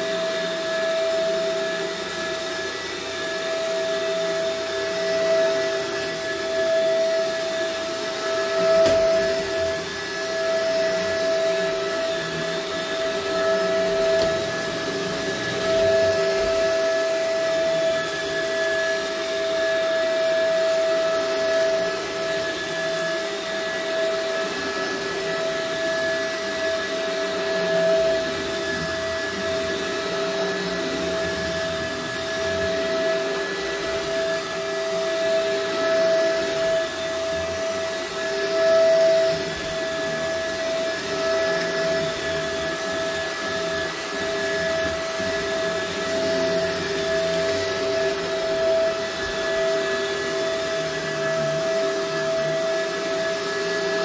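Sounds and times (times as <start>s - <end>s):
upright vacuum cleaner running: 0.0s - 54.0s.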